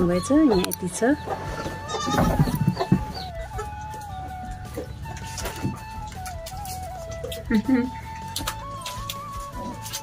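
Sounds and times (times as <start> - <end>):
chickens clucking: 0.0 - 7.4.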